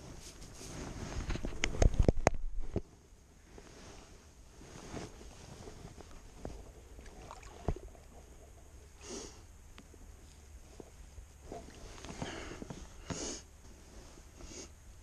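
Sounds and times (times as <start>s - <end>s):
handling noise on a boat: 0.0s - 15.0s
water lapping: 6.1s - 8.6s.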